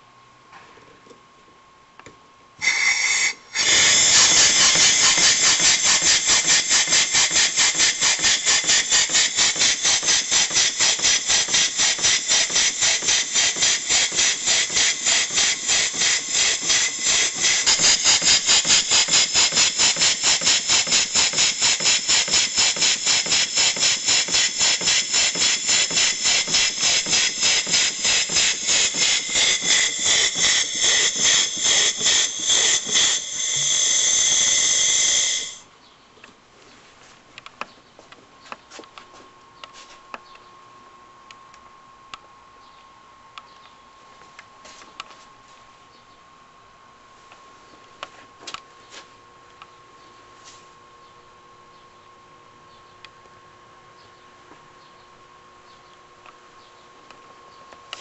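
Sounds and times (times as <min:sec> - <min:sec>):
steady hiss of air: 0:02.6 - 0:35.6
steam engine chuffing: 0:02.6 - 0:35.6.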